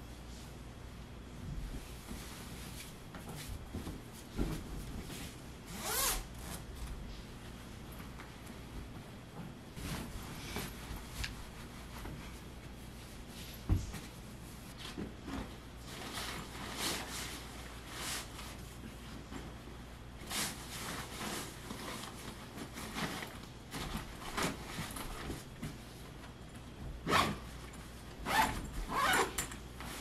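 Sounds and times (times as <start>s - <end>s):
clothes rustling: 1.6s - 30.0s
backpack zipper pulls: 5.7s - 6.6s, 28.3s - 29.4s.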